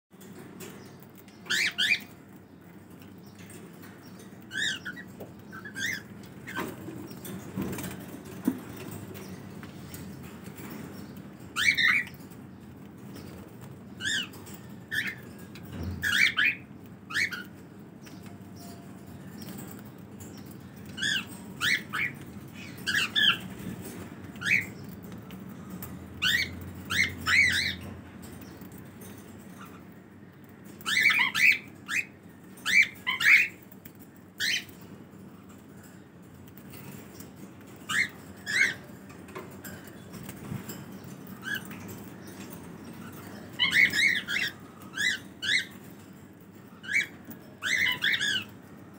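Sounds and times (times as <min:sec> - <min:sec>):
cockatiels chirping and squawking: 0:01.2 - 0:02.2, 0:04.2 - 0:08.9, 0:11.4 - 0:12.4, 0:14.0 - 0:18.8, 0:19.4 - 0:25.0, 0:25.7 - 0:28.0, 0:28.7 - 0:29.8, 0:30.8 - 0:33.8, 0:34.4 - 0:34.8, 0:37.7 - 0:39.0, 0:39.6 - 0:46.0, 0:46.8 - 0:48.8.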